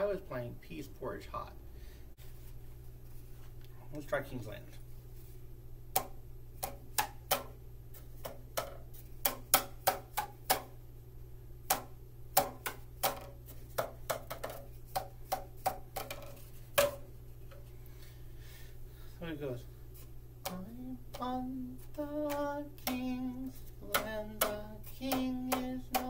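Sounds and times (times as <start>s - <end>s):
cardboard tubes tapped in a tune: 5.9s - 10.8s, 11.6s - 17.7s, 20.4s - 26.0s.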